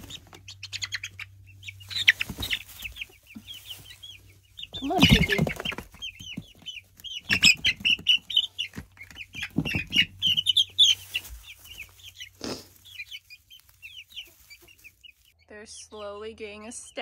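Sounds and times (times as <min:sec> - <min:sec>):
chicks peeping: 0:00.0 - 0:17.0
scuffles and wing flutters: 0:02.0 - 0:04.0.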